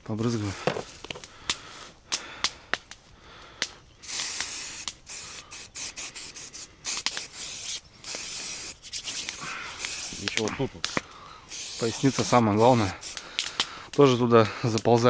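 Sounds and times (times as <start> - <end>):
aerosol spray hissing: 4.0 - 13.6
aerosol nozzle clicks: 13.1 - 13.7.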